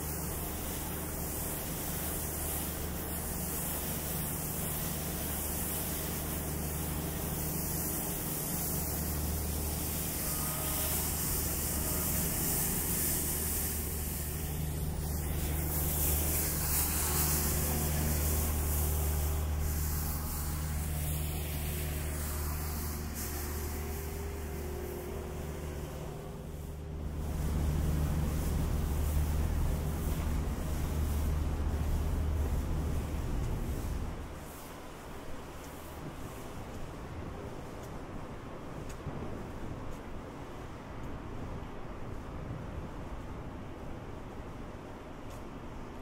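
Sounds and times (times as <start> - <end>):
traffic rumble: 0.0 - 35.7
tyres hissing on wet pavement: 0.0 - 38.0.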